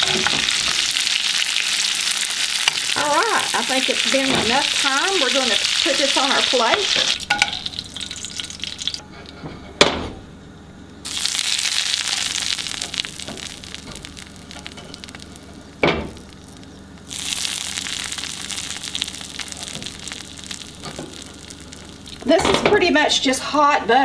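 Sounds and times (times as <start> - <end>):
butter sizzling on steak: 0.0 - 9.0, 11.0 - 22.4.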